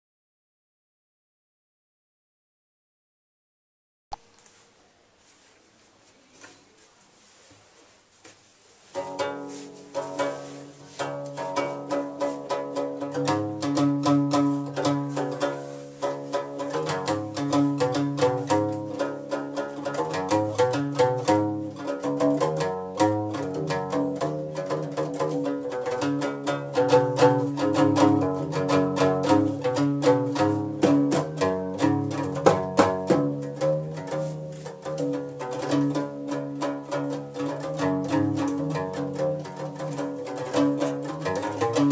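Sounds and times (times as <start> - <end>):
bass lute plucked notes: 9.0 - 41.9.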